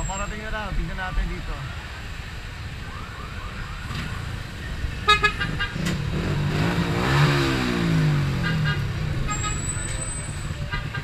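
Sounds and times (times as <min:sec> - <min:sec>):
street traffic: 0:00.0 - 0:11.0
horn toots: 0:05.0 - 0:11.0
motorcycle passing by: 0:05.4 - 0:09.2.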